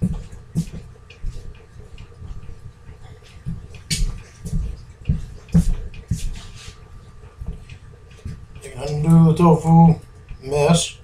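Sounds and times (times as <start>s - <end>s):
footsteps thudding on floor: 0.0s - 1.5s, 3.3s - 6.7s, 7.4s - 8.5s.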